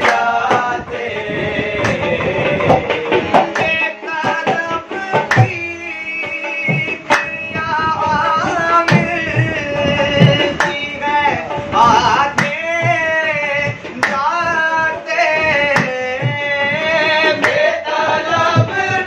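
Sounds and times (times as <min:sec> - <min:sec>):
hand claps: 0:00.0 - 0:00.7, 0:01.8 - 0:02.1, 0:03.4 - 0:03.8, 0:05.3 - 0:05.6, 0:08.9 - 0:09.1, 0:10.6 - 0:10.8, 0:12.4 - 0:12.6, 0:14.0 - 0:14.3, 0:15.7 - 0:16.0, 0:17.4 - 0:17.7
hand drum: 0:00.0 - 0:19.0
harmonium: 0:00.0 - 0:19.0.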